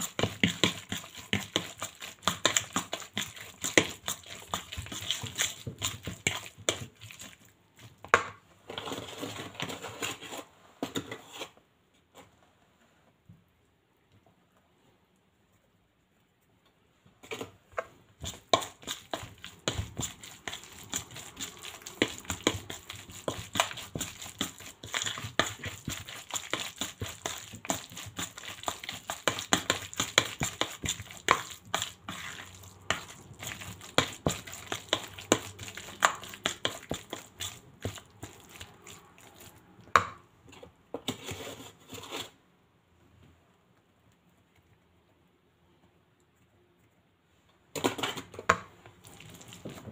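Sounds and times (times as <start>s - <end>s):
fork scraping a bowl: 18.2s - 39.6s.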